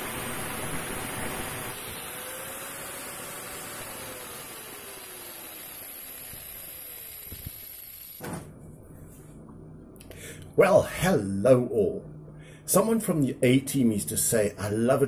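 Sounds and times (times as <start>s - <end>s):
steady hiss: 0.0s - 3.0s
angle grinder motor whine: 0.0s - 8.2s.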